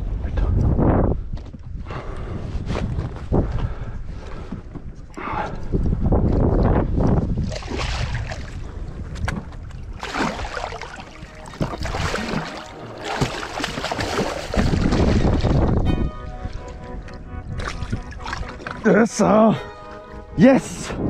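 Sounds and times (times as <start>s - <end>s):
wind buffeting microphone: 0.0s - 21.0s
fish thrashing and splashing: 7.4s - 15.8s.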